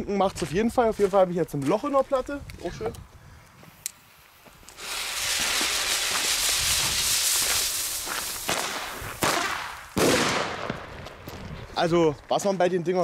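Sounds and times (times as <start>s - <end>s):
firecracker hissing: 3.5s - 11.8s
firecracker sharp cracks: 4.7s - 11.2s.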